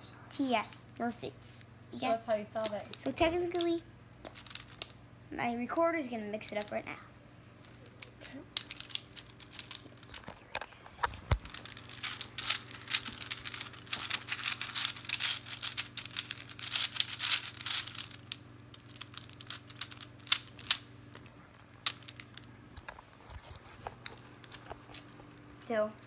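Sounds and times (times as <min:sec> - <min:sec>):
plastic puzzle clicking and clattering: 0:02.6 - 0:04.9, 0:07.8 - 0:20.8, 0:21.8 - 0:23.0.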